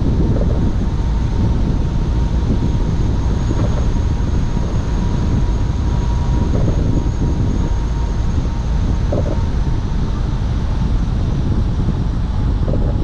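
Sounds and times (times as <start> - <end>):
faint high whine: 0.0 - 13.0
road and tyre noise: 0.0 - 13.0
wind buffeting microphone: 0.0 - 13.0.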